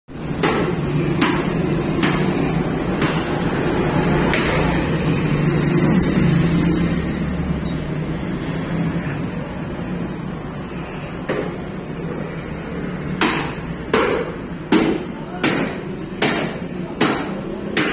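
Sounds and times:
cleaver chopping meat on wood: 0:00.2 - 0:03.5, 0:04.2 - 0:04.8, 0:13.2 - 0:17.9.

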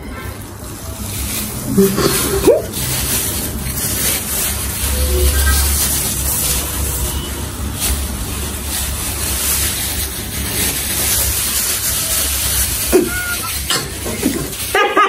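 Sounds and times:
plastic bags crinkling: 0:00.4 - 0:14.9
low hum: 0:04.5 - 0:07.2.

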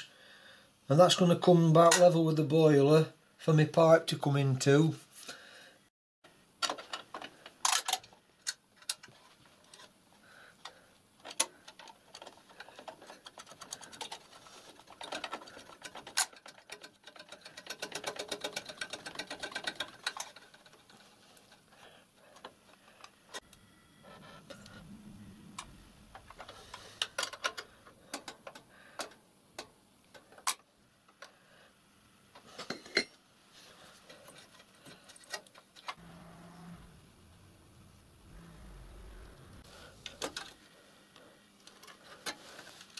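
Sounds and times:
metal parts clicking and tapping: 0:06.6 - 0:09.9, 0:10.6 - 0:23.2, 0:25.6 - 0:31.3.

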